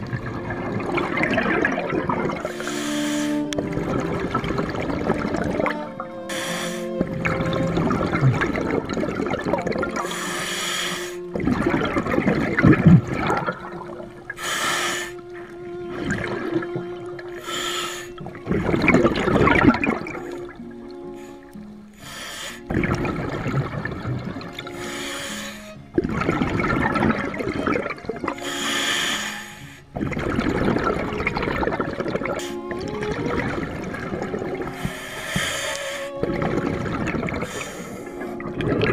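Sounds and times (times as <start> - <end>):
exhaled bubbles crackling: 0.0 - 38.9
hissing regulator inhale: 2.4 - 3.6, 6.3 - 7.1, 10.0 - 11.4, 14.3 - 15.3, 17.4 - 18.2, 20.1 - 22.8, 24.7 - 25.8, 28.4 - 30.0, 32.4 - 32.7, 34.7 - 36.3, 37.4 - 38.4.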